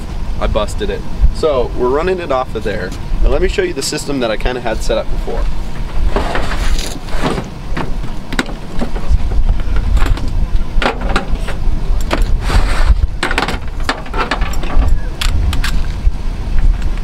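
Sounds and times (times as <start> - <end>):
steady low rumble: 0.0 - 17.0
air hose being pulled out: 12.2 - 13.1.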